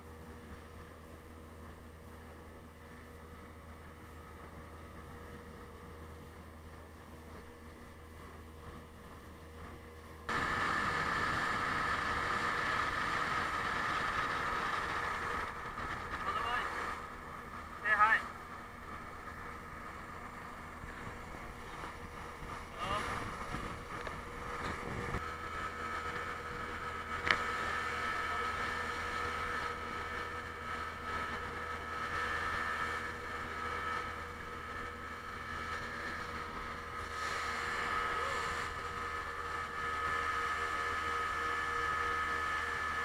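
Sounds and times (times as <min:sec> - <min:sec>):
speedboat engine whining: 0:00.0 - 0:43.0
wind: 0:00.0 - 0:43.0.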